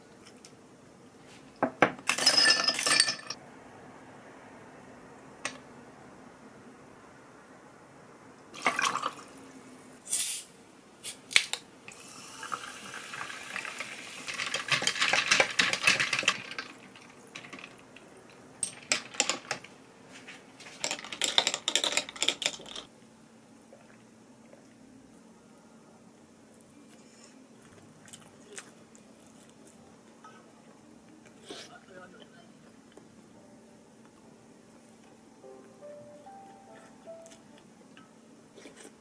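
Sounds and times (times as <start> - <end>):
ice cubes clinking in glass: 2.1 - 3.4, 13.6 - 17.7
liquid pouring over ice: 8.6 - 9.4, 12.4 - 16.8.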